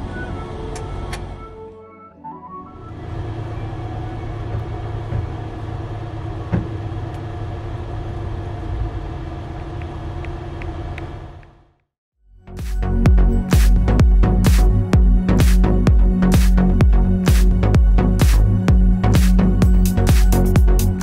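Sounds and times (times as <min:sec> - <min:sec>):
train rumble and hum: 0:00.0 - 0:01.8, 0:02.8 - 0:11.8.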